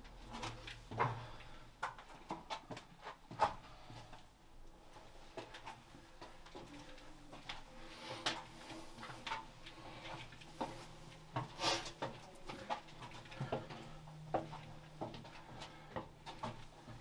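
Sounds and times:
footsteps on gritty stone stairs: 8.2s - 17.0s.

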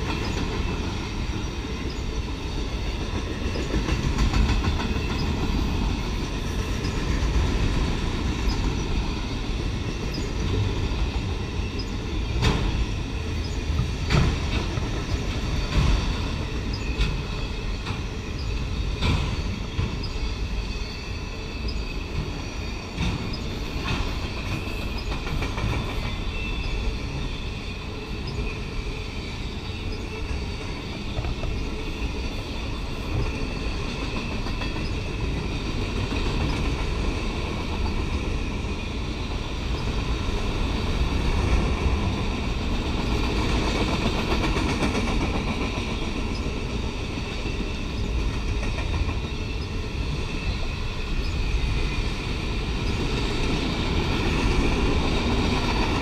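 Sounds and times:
wheels clacking over rail joints: 0.0s - 20.2s, 22.1s - 27.2s
train wheels rumbling on rails: 0.0s - 56.0s.

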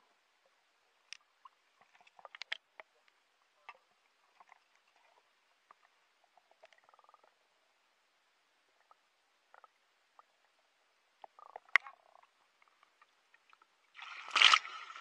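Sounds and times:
underwater clicks and knocks: 1.1s - 4.6s, 11.2s - 13.6s.

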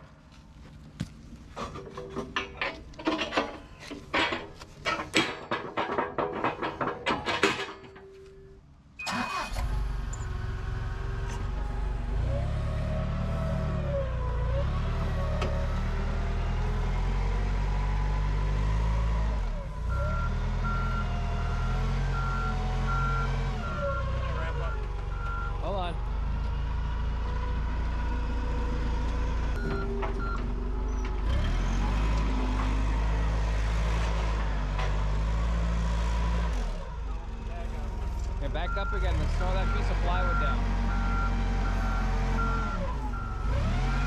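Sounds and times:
steel clanking: 1.5s - 8.5s
forklift engine running: 9.0s - 44.0s
reversing alarm beeping: 19.9s - 25.6s, 29.6s - 30.5s, 38.6s - 44.0s.

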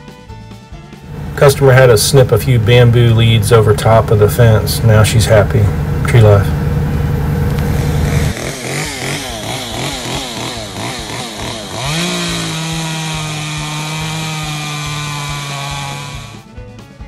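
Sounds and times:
chainsaw revving and cutting: 7.8s - 16.5s.

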